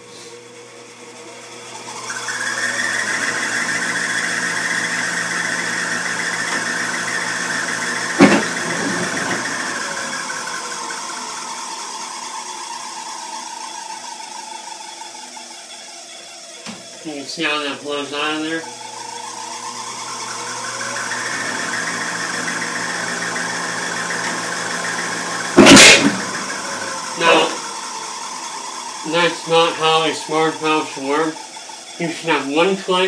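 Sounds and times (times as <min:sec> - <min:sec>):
furnace whine with hiss: 0:00.0 - 0:33.0
loud ignition bang: 0:25.6 - 0:26.4.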